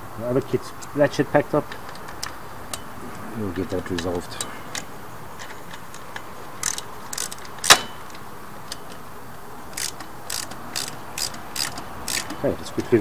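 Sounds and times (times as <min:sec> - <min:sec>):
ratchet wrench clicking: 0:04.0 - 0:09.0, 0:09.7 - 0:13.0.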